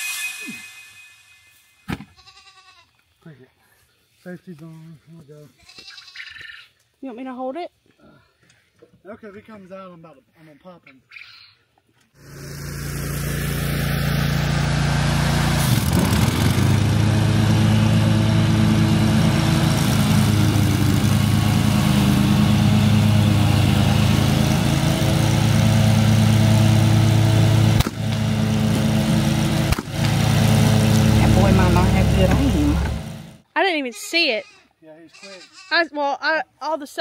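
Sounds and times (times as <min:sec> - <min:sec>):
lawn mower engine running: 0:12.2 - 0:33.4
sharp snap: 0:27.8 - 0:28.2.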